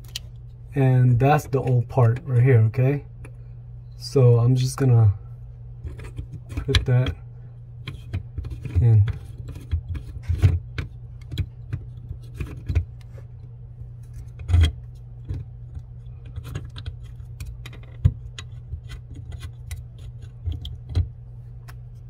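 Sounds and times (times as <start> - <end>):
steady low hum: 0.0 - 22.0
small metallic clicks and scrapes: 14.0 - 21.8.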